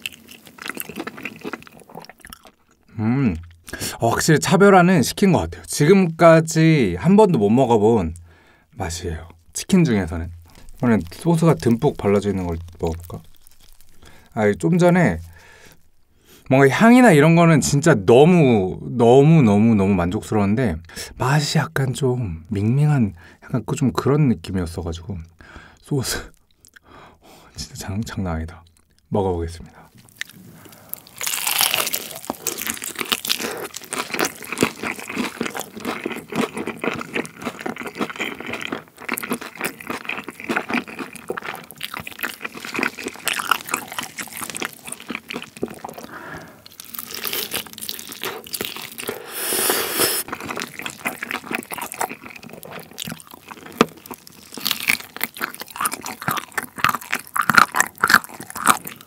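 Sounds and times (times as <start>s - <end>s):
moist chewing: 0.0s - 3.8s, 9.4s - 16.0s, 29.8s - 59.0s
crunching fried chicken: 0.0s - 3.9s, 9.6s - 16.0s, 30.0s - 59.0s
gnawing meat off bone: 50.3s - 59.0s.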